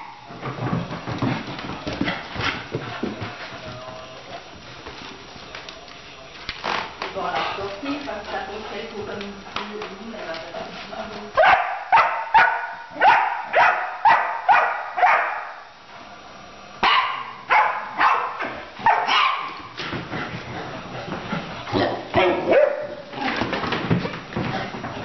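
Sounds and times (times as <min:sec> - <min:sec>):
dog play-barking: 0:11.4 - 0:15.6, 0:16.8 - 0:19.8, 0:21.7 - 0:23.5.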